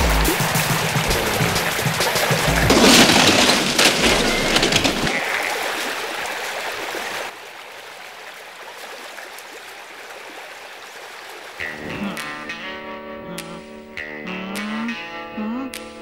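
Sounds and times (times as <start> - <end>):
rushing water: 0.0 - 11.8.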